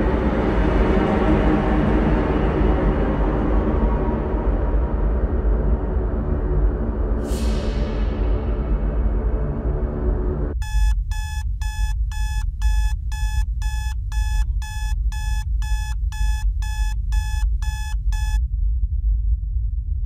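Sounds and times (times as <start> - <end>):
steady low rumble: 0.0 - 20.0
alarm clock beeping: 10.6 - 18.4.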